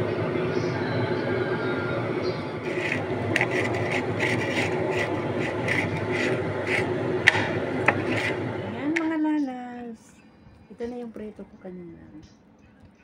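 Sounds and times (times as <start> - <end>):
low steady hum: 0.0 - 13.0
rhythmic rasping scraping: 2.6 - 8.6.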